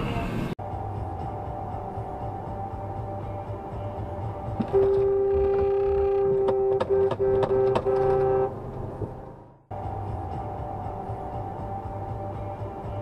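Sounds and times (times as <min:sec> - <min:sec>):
car horn honking: 0:04.6 - 0:08.7.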